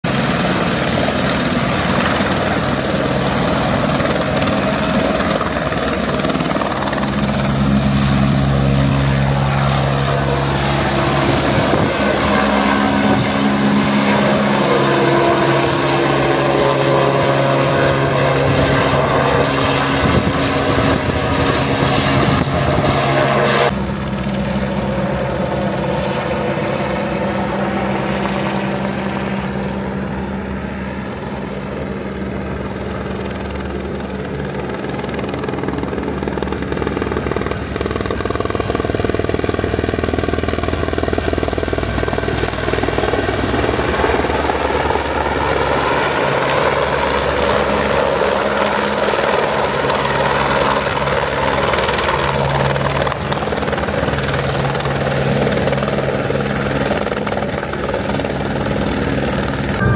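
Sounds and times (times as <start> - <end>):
helicopter engine and rotor: 0.0 - 59.9.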